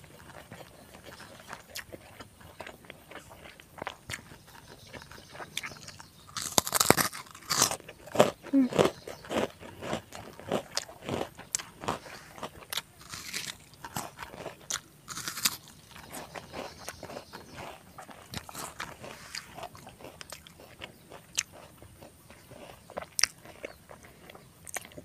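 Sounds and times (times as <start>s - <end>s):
wet chewing clicks: 0.0s - 25.0s
crunching bites: 0.2s - 25.0s.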